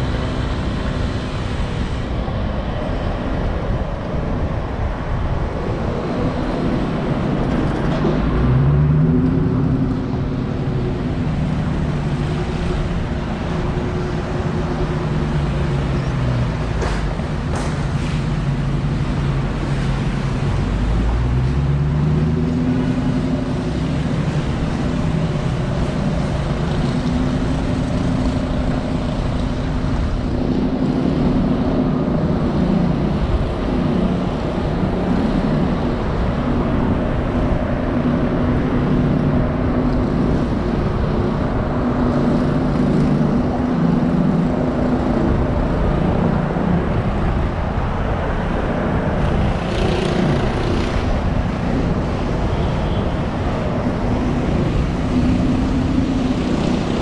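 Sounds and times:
car engine hum: 0:00.0 - 0:57.0
tyre and traffic noise: 0:00.0 - 0:57.0.

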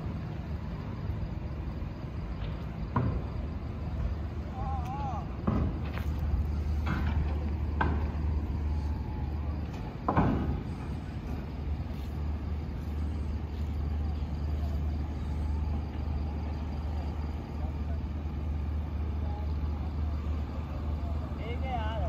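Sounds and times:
steady low hum: 0:00.0 - 0:22.0
faint distant voices: 0:12.8 - 0:22.0.

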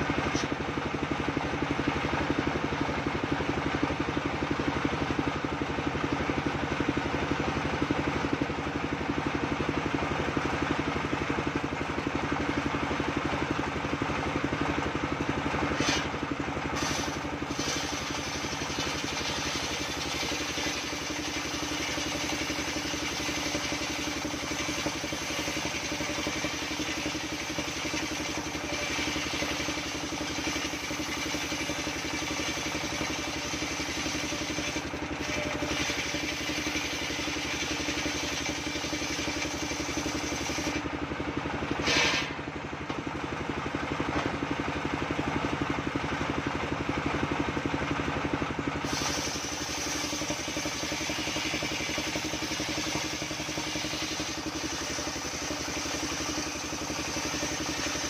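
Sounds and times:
circular saw ripping wood: 0:15.7 - 0:40.8, 0:48.8 - 0:58.0.

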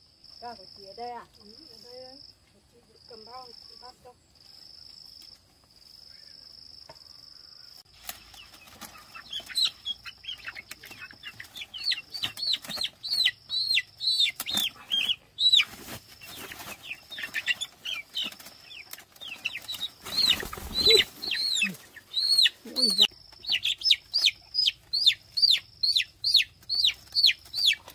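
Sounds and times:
wings flapping: 0:08.0 - 0:13.2, 0:14.2 - 0:22.1
chicks peeping in distress: 0:08.1 - 0:27.9
basket rustling: 0:14.4 - 0:23.1.

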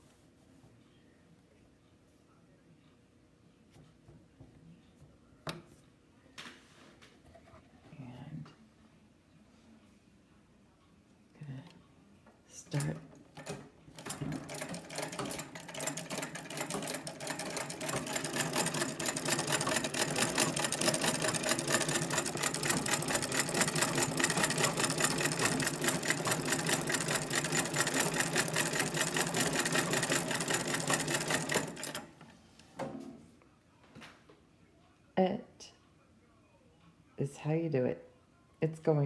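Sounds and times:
sewing machine stitching clatter: 0:12.8 - 0:32.2.

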